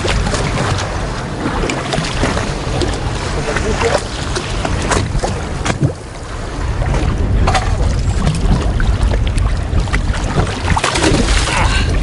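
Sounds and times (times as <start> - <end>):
water lapping against boat hull: 0.0 - 12.0
wind buffeting microphone: 0.0 - 12.0
short splashes: 10.1 - 11.9.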